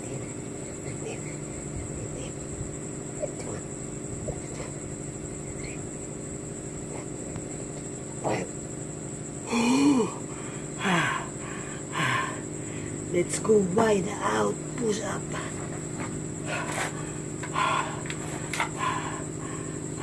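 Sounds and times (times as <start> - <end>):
steady high whine: 0.0 - 20.0
steady low hum: 0.0 - 20.0
man grunting with effort: 9.5 - 12.4.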